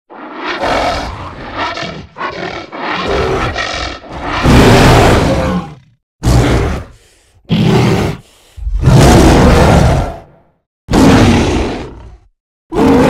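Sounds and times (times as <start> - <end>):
creature growling: 0.2 - 13.0
creature roaring: 0.2 - 13.0.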